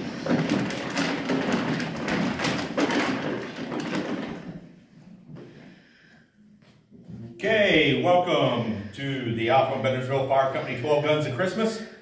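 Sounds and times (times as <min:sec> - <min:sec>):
paper tickets tumbling: 0:00.0 - 0:04.5.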